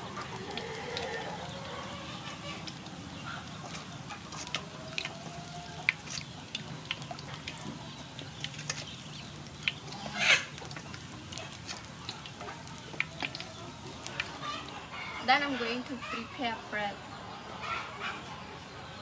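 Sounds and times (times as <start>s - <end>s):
chickens clucking: 0.0s - 19.0s
spoon stirring batter in bowl: 2.6s - 14.8s.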